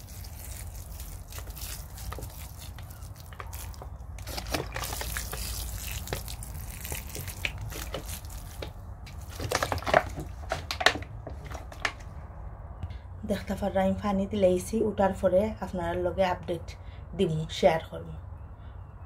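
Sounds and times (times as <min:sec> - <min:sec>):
water dripping and splashing on soil: 0:00.0 - 0:10.7.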